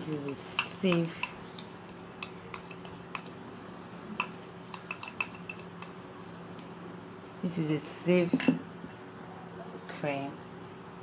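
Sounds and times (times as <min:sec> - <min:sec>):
faint steady hum: 0:00.0 - 0:11.0
spoon scraping glass bowl: 0:04.2 - 0:05.8.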